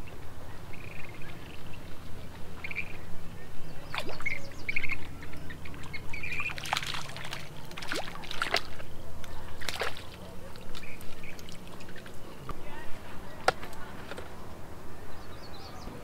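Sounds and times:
birds chirping: 0:00.0 - 0:16.0
fish splashing at water surface: 0:05.7 - 0:12.2.

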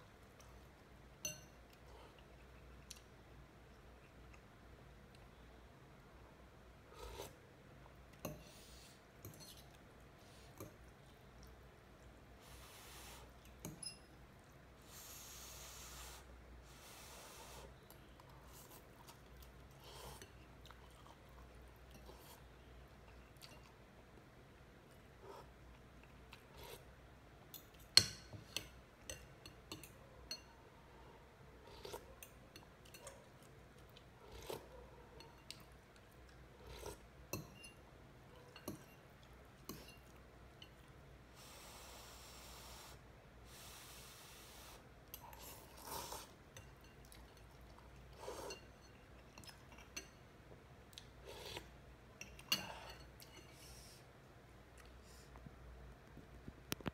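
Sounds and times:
cutlery clinking on a bowl: 0:01.2 - 0:01.8, 0:09.2 - 0:09.8, 0:13.4 - 0:14.1, 0:27.5 - 0:30.5, 0:37.3 - 0:37.9, 0:38.5 - 0:40.8, 0:48.3 - 0:50.2, 0:52.2 - 0:53.6.

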